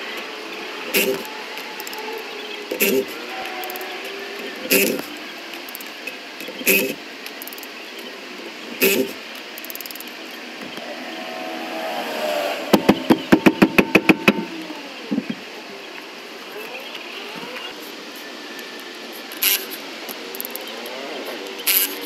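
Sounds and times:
impact wrench: 0:12.7 - 0:14.6.

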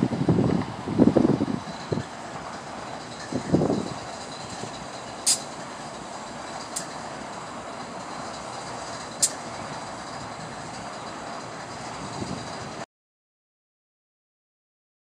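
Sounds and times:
freight train cars rolling: 0:00.0 - 0:12.8
sharp clicks: 0:09.2 - 0:09.4.

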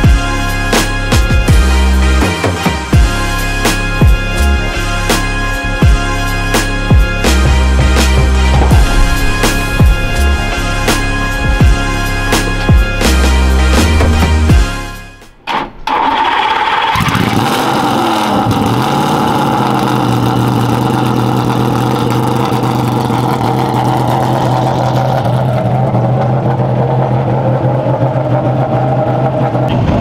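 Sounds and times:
car engine idling: 0:06.9 - 0:29.7.

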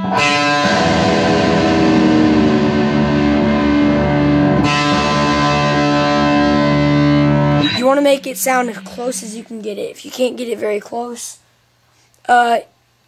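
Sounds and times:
distorted electric guitar strings: 0:00.0 - 0:09.9.

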